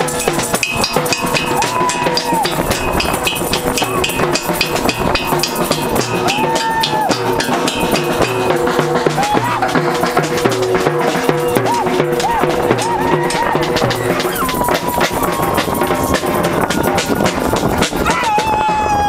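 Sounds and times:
crowd banging drums: 0.0s - 19.0s
held pitched tones: 0.0s - 19.0s
rising and falling calls: 5.6s - 19.0s.

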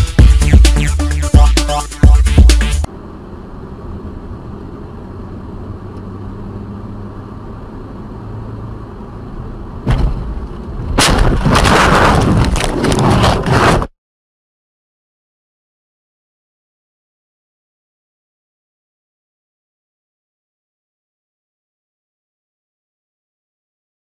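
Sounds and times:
low vehicle rumble: 0.0s - 13.6s
sudden bang: 9.8s - 13.9s
harsh crashing noise: 10.9s - 13.9s.

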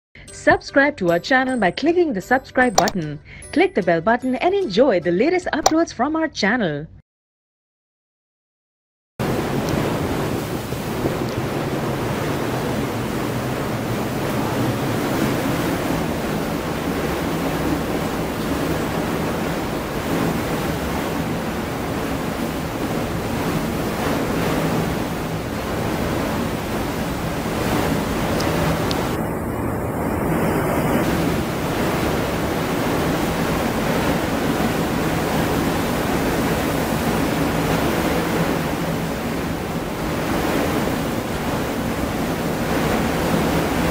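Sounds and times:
waves breaking: 9.2s - 43.9s
wind blowing across microphone: 9.2s - 43.9s.

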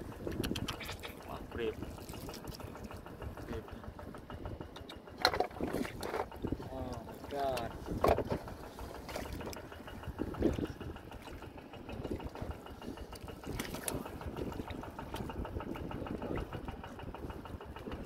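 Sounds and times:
engine-driven water pump running: 0.0s - 18.0s.

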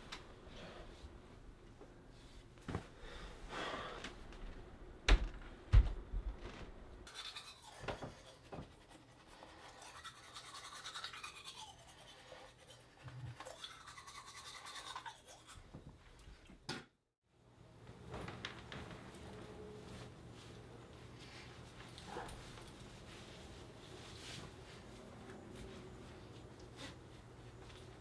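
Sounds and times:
toothbrush scrubbing teeth: 7.1s - 15.7s.

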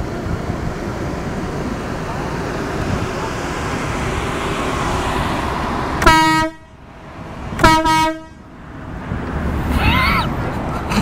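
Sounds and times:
steady rushing noise: 0.0s - 11.0s
air horn blasts: 6.0s - 6.8s, 7.6s - 8.5s.

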